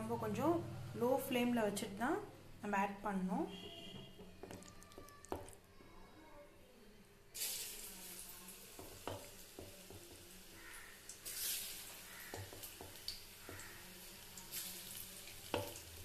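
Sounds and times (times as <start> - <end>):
frying oil sizzling: 7.4 - 16.0.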